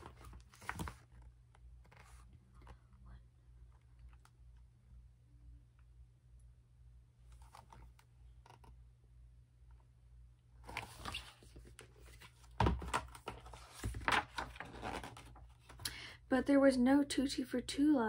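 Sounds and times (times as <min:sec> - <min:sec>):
page turning: 0:00.0 - 0:02.7, 0:07.3 - 0:08.8, 0:10.6 - 0:15.8
paper rustling: 0:00.0 - 0:02.8, 0:10.7 - 0:15.8
book knocking down: 0:12.6 - 0:14.2.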